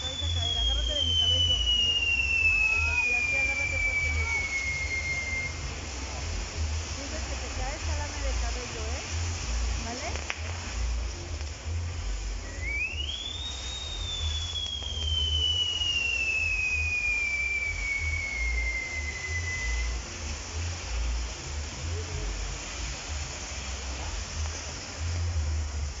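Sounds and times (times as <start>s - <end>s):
firework whistle: 0.0s - 26.0s
hiss of firework sparks: 0.0s - 26.0s.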